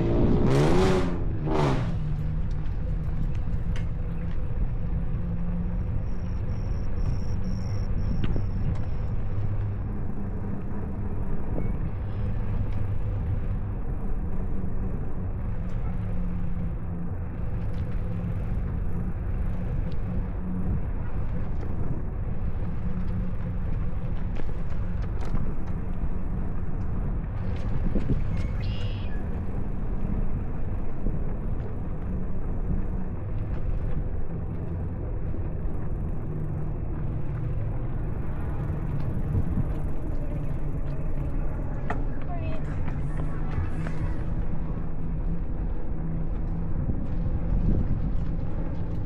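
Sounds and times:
wind rumbling over microphone: 0:00.0 - 0:49.0.

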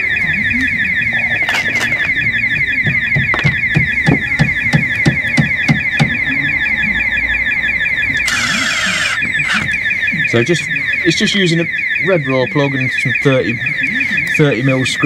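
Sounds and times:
warbling alarm siren: 0:00.0 - 0:15.0
dull knocks: 0:02.8 - 0:06.2.

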